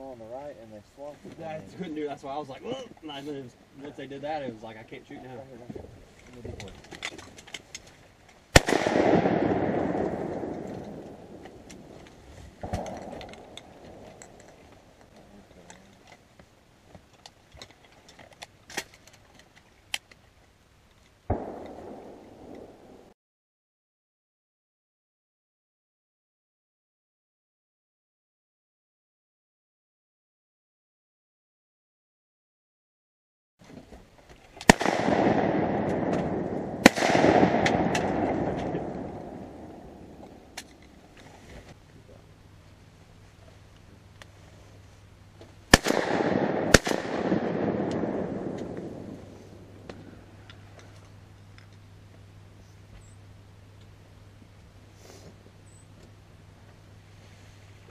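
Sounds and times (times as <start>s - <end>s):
faint sharp cracks: 6.2s - 16.2s, 21.0s - 23.1s, 34.4s - 41.8s, 45.4s - 51.8s
shotgun blasts with echo: 8.5s - 12.0s, 21.3s - 23.1s, 34.6s - 40.6s, 45.7s - 50.3s.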